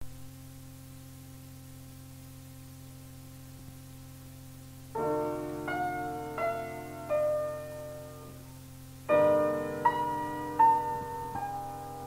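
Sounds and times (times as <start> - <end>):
low electrical hum: 0.0 - 12.0
piano held chord: 5.0 - 12.0.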